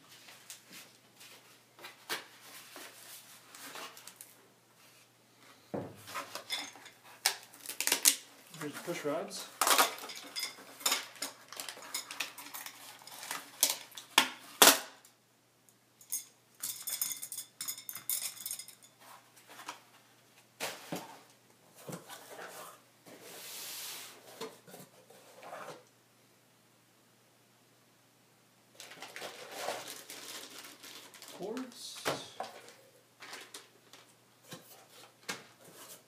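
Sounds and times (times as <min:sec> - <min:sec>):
metal rods clinking and rattling: 0:09.6 - 0:13.2, 0:16.0 - 0:19.0
cardboard boxes scraping: 0:20.7 - 0:25.8.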